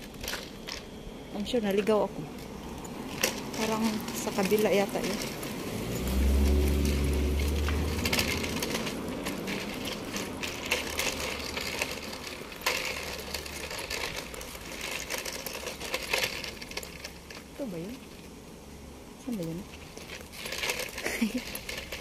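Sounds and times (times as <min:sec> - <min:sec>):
car engine humming: 0:00.0 - 0:22.0
footsteps on pavement: 0:01.5 - 0:16.8.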